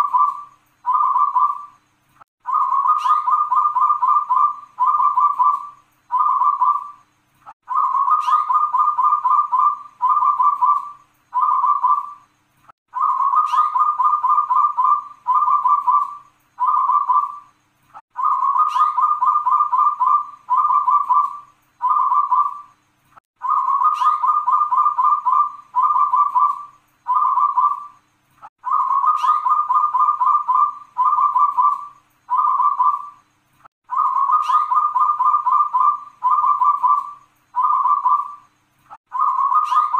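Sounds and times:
dove cooing song: 0:00.0 - 0:01.8, 0:02.4 - 0:12.3, 0:12.9 - 0:22.8, 0:23.4 - 0:28.0, 0:28.6 - 0:33.2, 0:33.9 - 0:38.5, 0:39.1 - 0:39.9.

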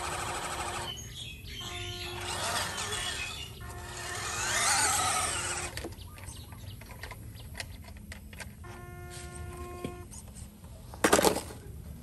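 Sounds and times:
toy truck motor whining: 0:00.0 - 0:06.4.

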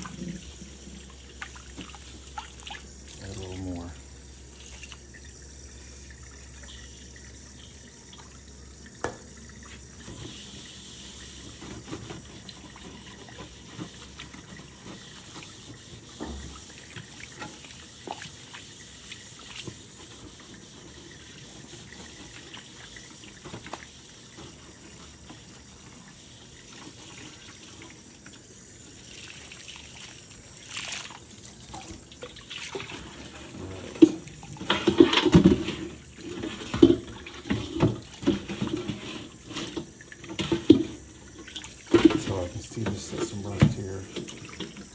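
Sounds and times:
tap running water: 0:00.0 - 0:44.9
sponge scrubbing a wok: 0:10.2 - 0:26.0.

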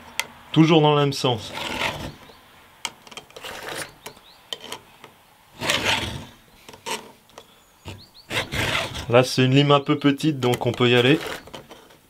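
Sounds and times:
file rasping on saw chain: 0:01.4 - 0:02.3, 0:03.3 - 0:04.8, 0:05.6 - 0:07.1, 0:07.8 - 0:09.2, 0:11.0 - 0:12.0.

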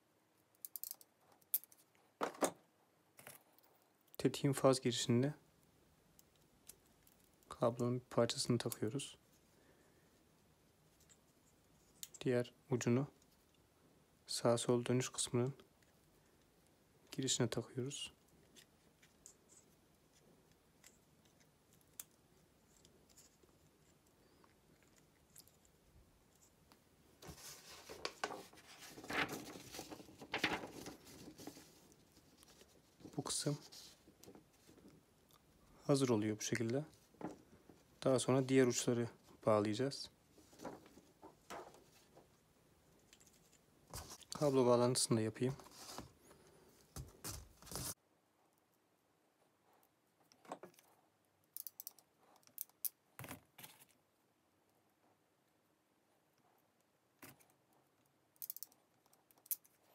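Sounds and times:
paper rustling: 0:27.2 - 0:34.8, 0:40.4 - 0:42.0, 0:46.9 - 0:48.0.

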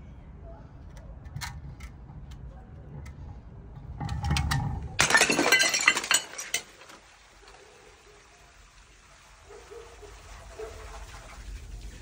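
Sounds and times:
glass bottle knocking on concrete steps: 0:05.0 - 0:06.7
glass shattering: 0:05.0 - 0:07.0.

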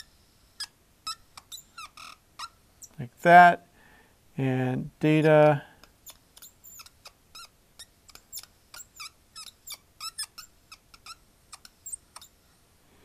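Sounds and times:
marker squeaking on a whiteboard: 0:00.0 - 0:03.0, 0:05.8 - 0:12.4.

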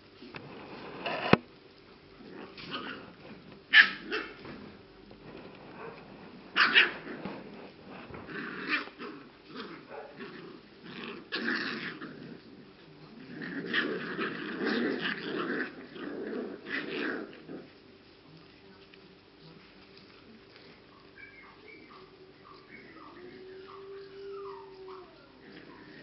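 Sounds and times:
puppy yapping: 0:03.7 - 0:04.4, 0:06.6 - 0:07.1, 0:20.9 - 0:26.0
puppies growling and yipping: 0:06.5 - 0:17.8, 0:20.4 - 0:26.0.

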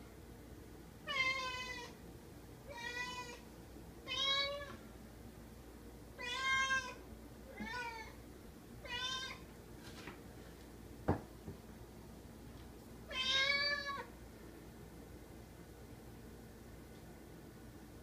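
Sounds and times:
cat meowing: 0:01.1 - 0:02.0, 0:02.7 - 0:03.4, 0:04.1 - 0:04.8, 0:06.2 - 0:07.0, 0:07.6 - 0:08.2, 0:08.8 - 0:09.4, 0:13.1 - 0:14.1.

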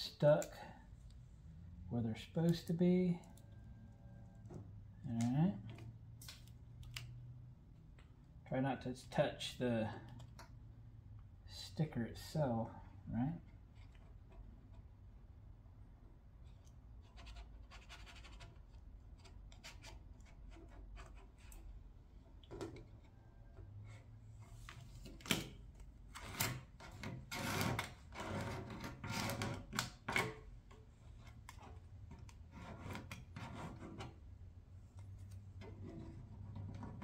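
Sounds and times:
faint low hum: 0:00.0 - 0:27.8.

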